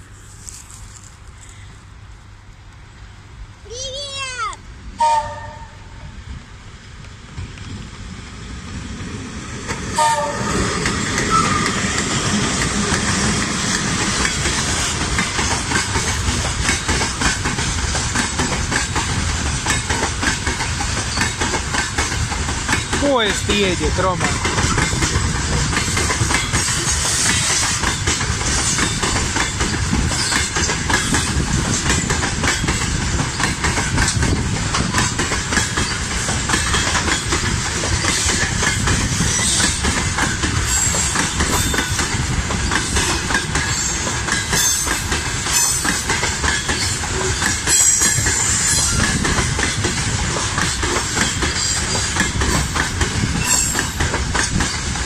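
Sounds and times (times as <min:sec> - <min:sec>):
train wheels rumbling: 0:00.0 - 0:55.0
clickety-clack over rail joints: 0:06.8 - 0:55.0.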